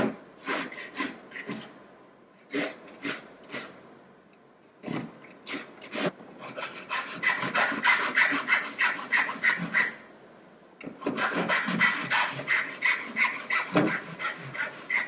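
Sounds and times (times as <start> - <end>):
file scraping metal edge: 4.8 - 10.0, 11.0 - 15.0.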